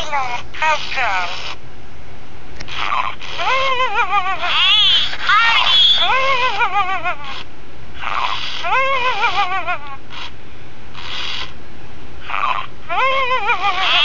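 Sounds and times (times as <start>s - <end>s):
warbling electronic toy voices: 0.0s - 1.6s, 2.7s - 10.3s, 12.2s - 14.0s.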